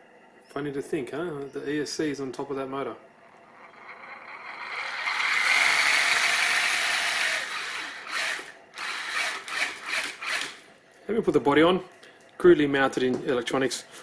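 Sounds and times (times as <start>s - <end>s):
toy car gears whirring: 3.4s - 10.6s.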